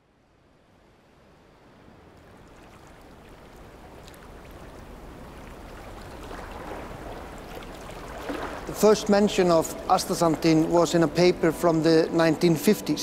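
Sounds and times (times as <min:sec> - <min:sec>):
water running over rocks: 0:02.2 - 0:11.0.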